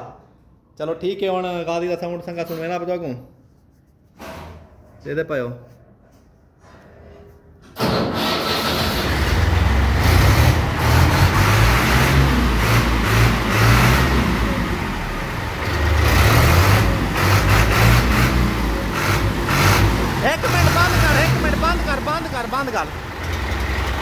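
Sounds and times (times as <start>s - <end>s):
diesel tractor engine running: 8.1s - 24.0s.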